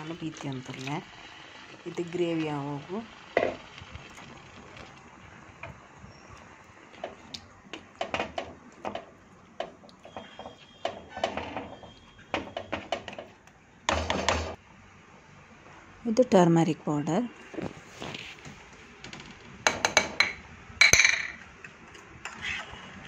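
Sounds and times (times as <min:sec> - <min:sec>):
spoon scraping and knocking pan: 0:03.4 - 0:03.7, 0:07.8 - 0:13.3.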